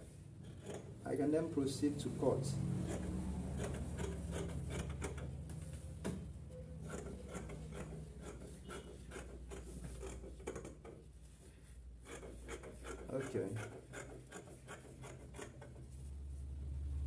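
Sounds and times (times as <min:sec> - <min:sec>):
scissors snipping fabric: 0:02.8 - 0:05.3, 0:06.8 - 0:10.9, 0:12.0 - 0:15.8.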